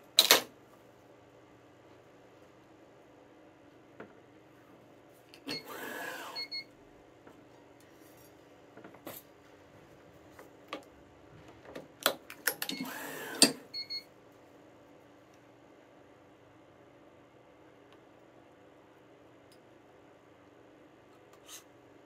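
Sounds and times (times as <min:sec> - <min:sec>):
stringing machine motor whir: 0:05.5 - 0:06.5, 0:12.7 - 0:13.7.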